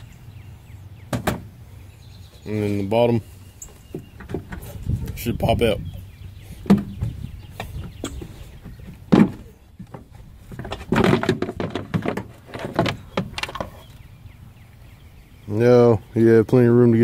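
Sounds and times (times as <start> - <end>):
plastic knocks scrapes and creaks: 3.9 - 5.2, 6.6 - 14.0.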